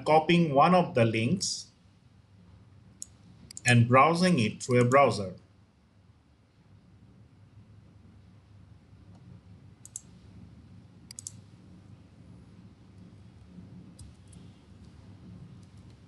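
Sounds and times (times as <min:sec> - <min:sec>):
faint low hum: 0:00.0 - 0:16.0
mouse and keyboard clicks: 0:09.8 - 0:10.1, 0:11.1 - 0:11.4.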